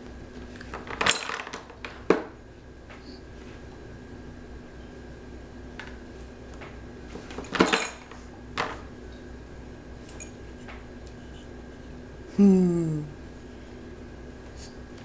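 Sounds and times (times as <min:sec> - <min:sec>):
short falling voice sound: 0:12.3 - 0:13.2.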